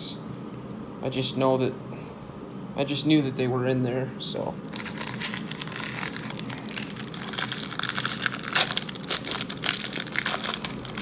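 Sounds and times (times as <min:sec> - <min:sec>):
foil wrapper crinkling: 0:04.6 - 0:11.0.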